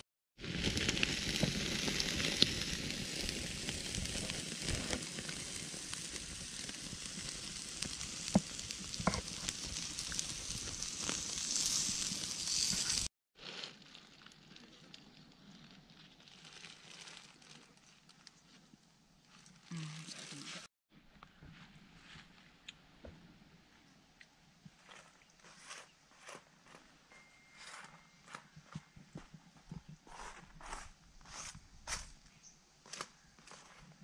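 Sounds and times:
chicken sizzling in a pot: 0.4s - 14.4s
wood fire crackling: 0.4s - 20.5s.

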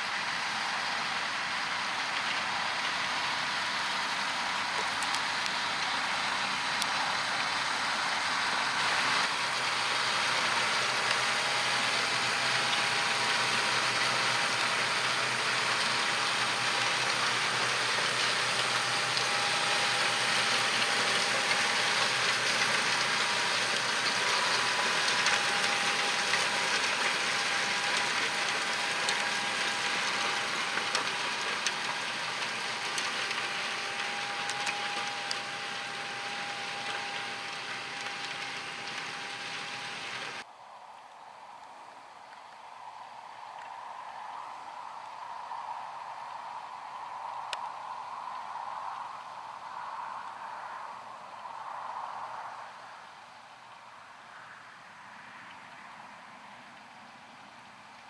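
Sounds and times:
tractor diesel engine under load: 0.0s - 40.5s
thin steady whine: 0.0s - 58.0s.

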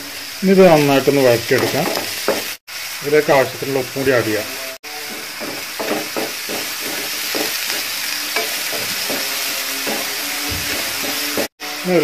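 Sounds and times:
onions sizzling in hot oil: 0.0s - 12.0s
wooden spatula scraping a pan: 5.0s - 11.5s.

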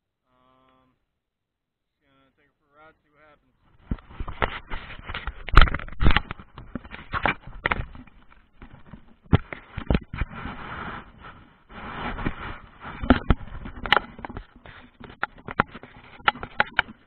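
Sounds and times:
knocks and scrapes: 3.7s - 17.0s
rustling: 3.7s - 17.0s.

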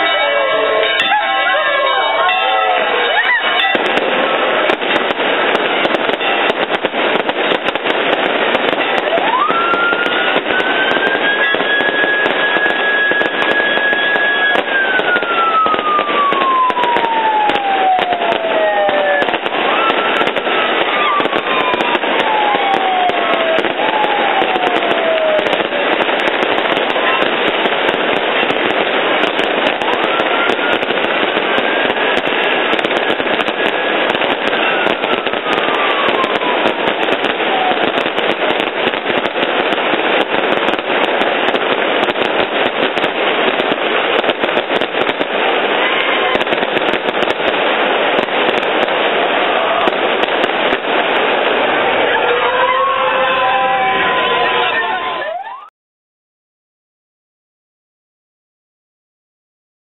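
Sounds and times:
firecrackers crackling: 0.0s - 55.7s
falling whistles: 9.2s - 19.0s.

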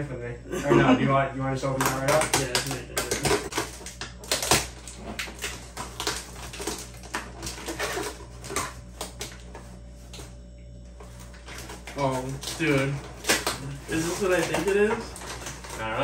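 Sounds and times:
fingernails scratching packing tape: 1.8s - 9.4s.

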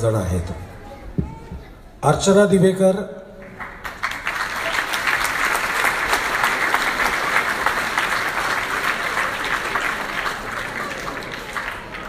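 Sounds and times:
audience applauding: 3.4s - 12.0s.

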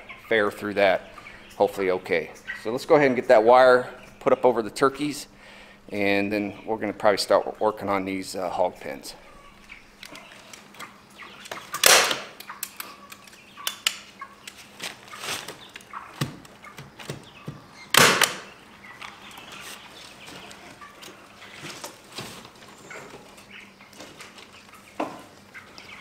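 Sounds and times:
loud sharp snaps: 11.8s - 14.0s, 17.9s - 18.5s.

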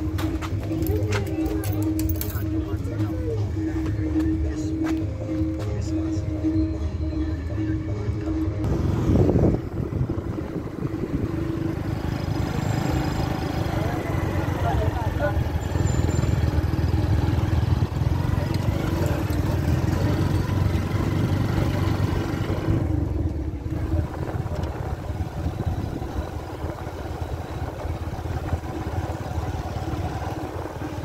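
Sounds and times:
motorcycle engine rumble: 0.0s - 31.0s
wind on microphone: 8.6s - 11.9s, 23.6s - 31.0s.

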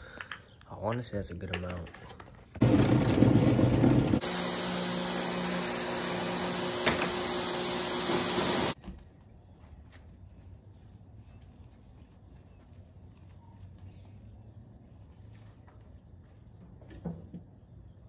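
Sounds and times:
water rushing into plastic bucket: 2.6s - 4.2s
pressure washer spray hissing: 4.2s - 8.8s.

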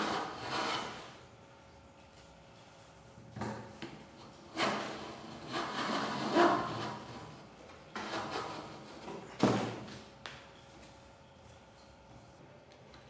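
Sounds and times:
hand plane shaving wood: 0.0s - 1.1s, 4.5s - 7.3s, 8.0s - 9.1s.

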